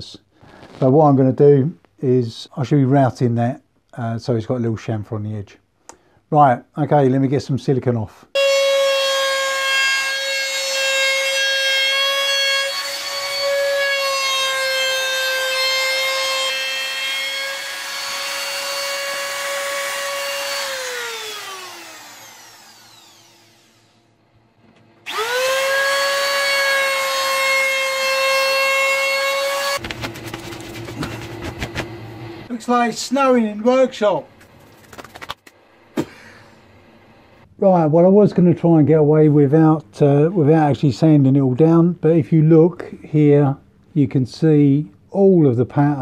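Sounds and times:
trim router whining: 0:08.4 - 0:24.1, 0:24.8 - 0:29.8.

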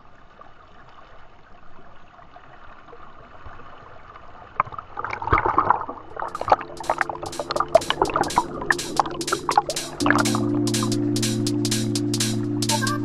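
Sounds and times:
water splashing and sloshing: 0:02.2 - 0:10.5.

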